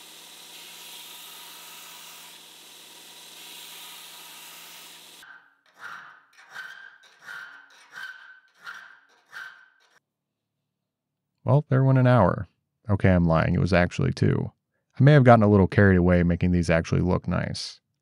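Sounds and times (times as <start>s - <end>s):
belt grinder hissing: 0.0s - 10.0s
hand file rasping on steel: 0.0s - 10.0s.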